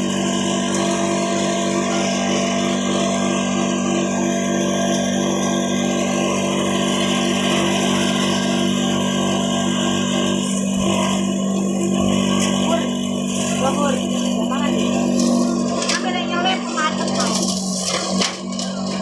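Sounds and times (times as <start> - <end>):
leaf chopping machine humming: 0.0 - 19.0.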